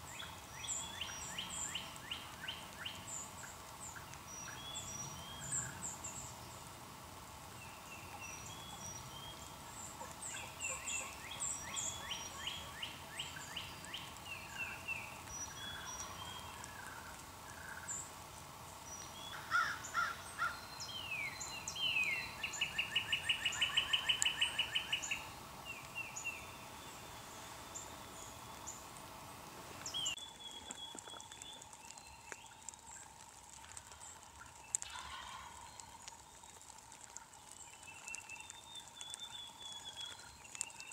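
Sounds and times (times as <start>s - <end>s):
small songbirds chirping: 0.0s - 40.9s
turkey yelping: 34.8s - 35.6s.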